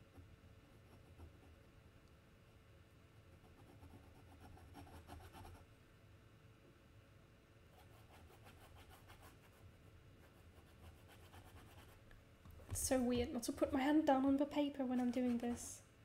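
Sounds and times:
low room hum: 0.0 - 16.0
pen scratching on paper: 3.4 - 5.6.

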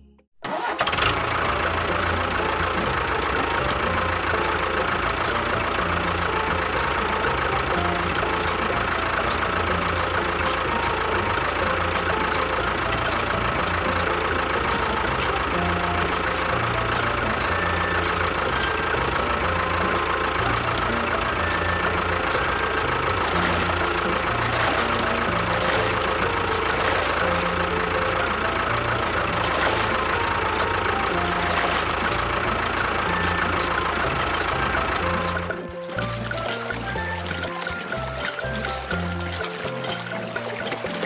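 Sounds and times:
motor running: 0.7 - 41.0.

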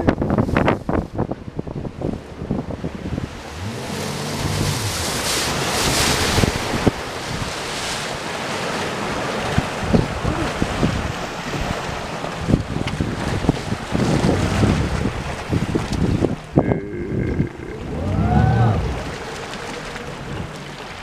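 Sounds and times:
wind buffeting microphone: 0.0 - 8.1, 9.2 - 21.0
water rushing and splashing: 0.0 - 21.0
low droning tone: 3.2 - 6.8, 16.5 - 20.9.

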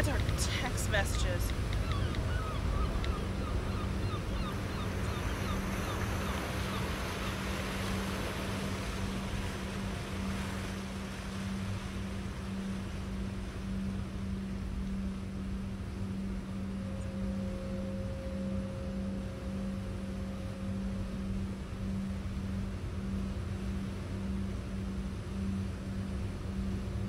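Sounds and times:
faint steady high tone: 0.0 - 27.0
wind and water hiss: 0.0 - 27.0.

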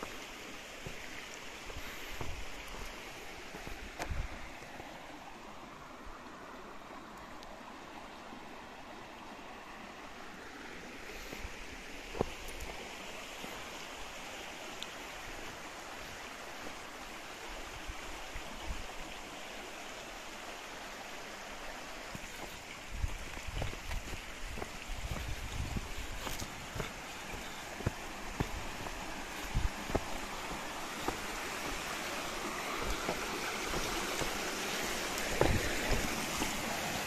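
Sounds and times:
creek water rushing: 0.0 - 37.0.

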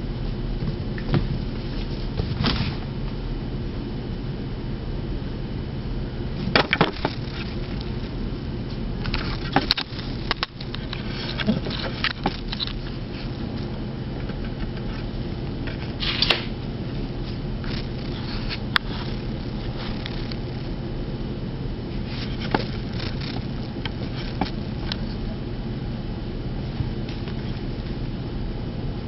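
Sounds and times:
steady low hum: 0.0 - 29.0
kittens scampering on tiles: 9.1 - 15.2, 17.2 - 20.7.

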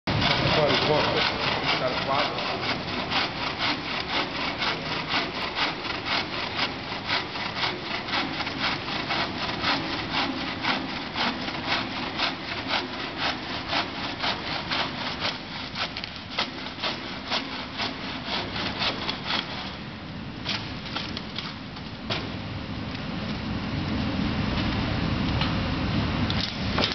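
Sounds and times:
saw rasping through wood: 0.1 - 21.2.

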